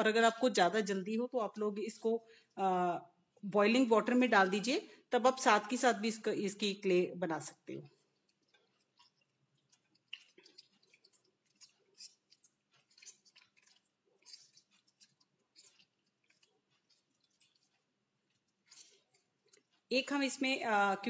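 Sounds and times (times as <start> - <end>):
wet pulp squelching: 7.4 - 19.9.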